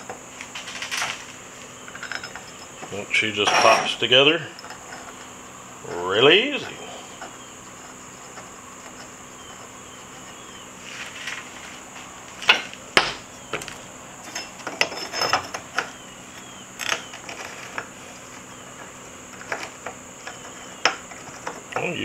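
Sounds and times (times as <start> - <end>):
metal scales clinking: 1.9 - 9.6, 14.2 - 16.0.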